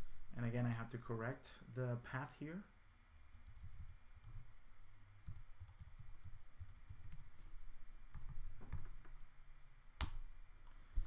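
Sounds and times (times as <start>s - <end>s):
keyboard typing: 3.3s - 4.5s, 5.2s - 7.3s, 8.1s - 9.0s, 10.0s - 10.2s.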